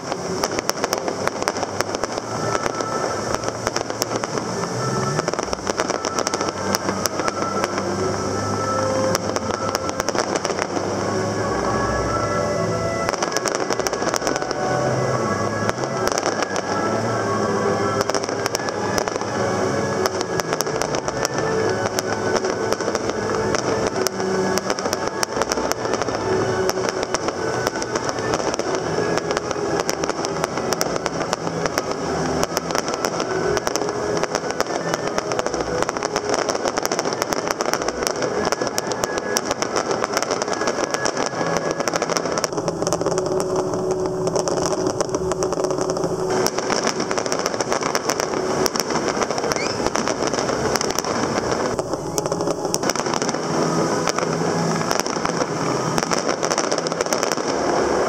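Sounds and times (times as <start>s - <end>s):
fireworks crackling and popping: 0.0s - 58.0s
steady several-toned sound: 39.4s - 58.0s.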